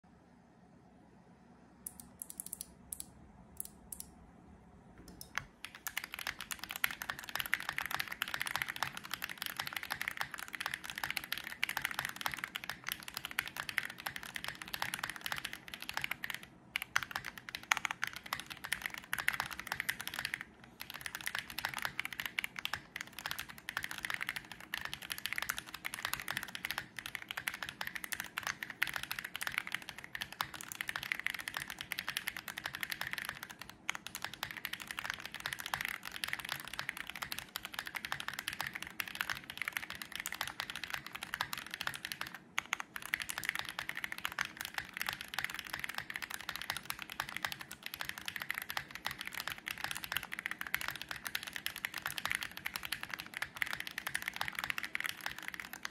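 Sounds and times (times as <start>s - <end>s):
mechanical keyboard typing: 1.9s - 4.1s, 5.1s - 55.9s.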